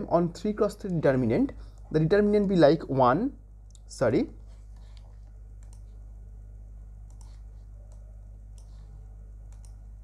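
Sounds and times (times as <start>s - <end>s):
low electrical hum: 0.0s - 10.0s
mouse clicks: 4.9s - 6.0s, 7.0s - 8.8s, 9.5s - 9.8s.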